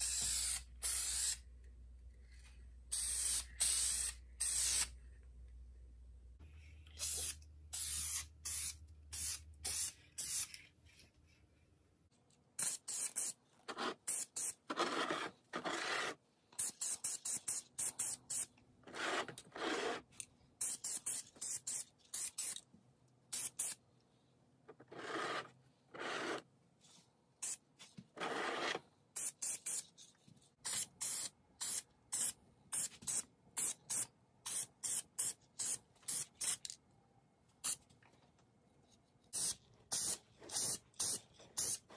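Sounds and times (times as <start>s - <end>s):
aerosol spray can hissing: 0.0s - 1.4s, 2.9s - 4.9s, 7.0s - 10.6s, 12.6s - 13.4s, 39.4s - 41.9s.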